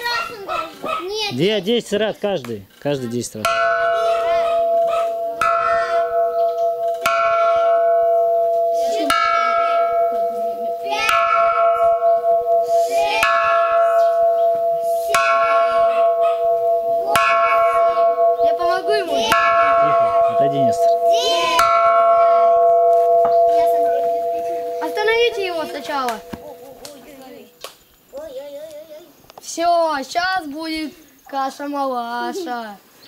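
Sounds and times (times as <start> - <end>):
gas cylinder bell ringing: 3.5 - 26.8.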